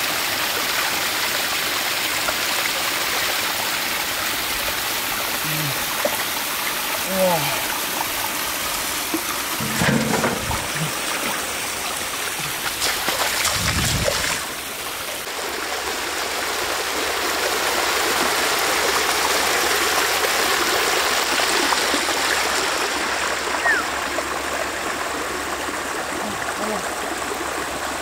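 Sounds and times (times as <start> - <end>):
stream rushing over rocks: 0.0 - 28.0
hands splashing in water: 12.3 - 14.6.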